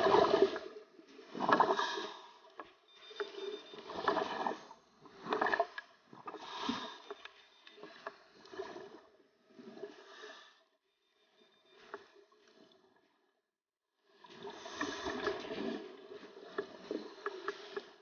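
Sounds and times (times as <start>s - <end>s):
underwater bubbles gurgling: 0.0s - 2.6s, 3.2s - 10.2s, 14.1s - 18.0s.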